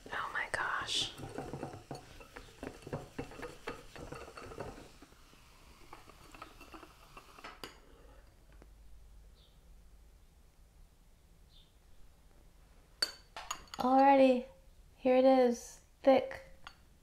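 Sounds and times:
whisk scraping glass tumbler: 0:00.0 - 0:08.3.

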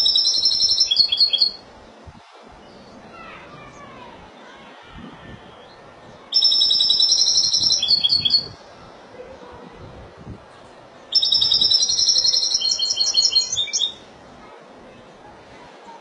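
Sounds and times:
goldfinch twittering song: 0:00.0 - 0:01.6, 0:05.6 - 0:08.6, 0:11.1 - 0:14.0.

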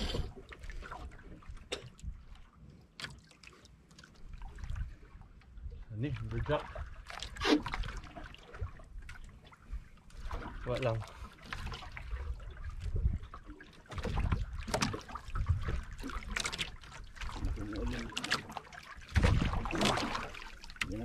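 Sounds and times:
water splashing against boat hull: 0:00.0 - 0:21.0
wind rumbling on microphone: 0:12.0 - 0:16.4, 0:19.1 - 0:21.0.

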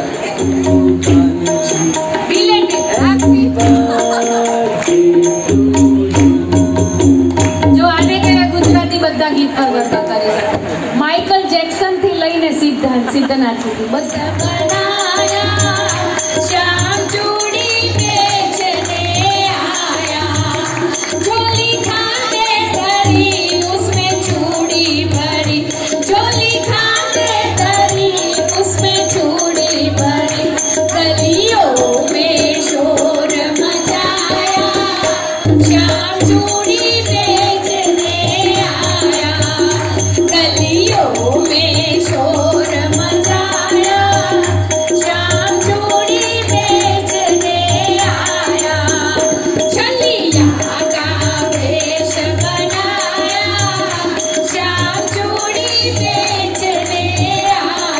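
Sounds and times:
woman singing into microphone: 0:00.0 - 0:57.9
drum beat: 0:00.4 - 0:08.9.

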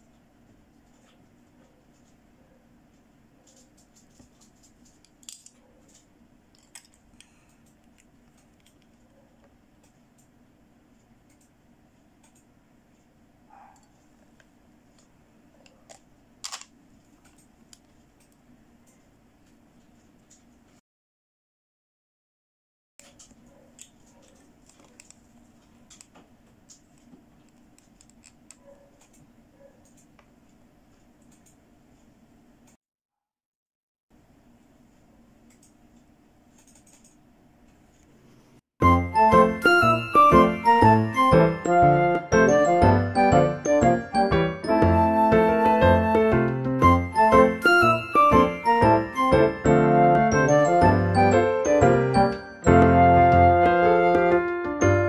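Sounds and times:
plastic doll handling clicks: 0:03.5 - 0:06.0, 0:06.6 - 0:08.9, 0:15.8 - 0:18.4, 0:23.0 - 0:25.2, 0:25.9 - 0:29.2
plastic toy pieces clicking: 0:03.5 - 0:06.0, 0:06.6 - 0:08.8, 0:15.9 - 0:16.7.

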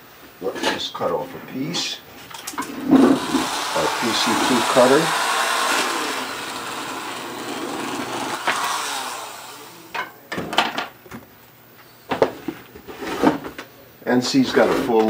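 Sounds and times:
carpet cutter motor slicing carpet: 0:02.6 - 0:09.9.

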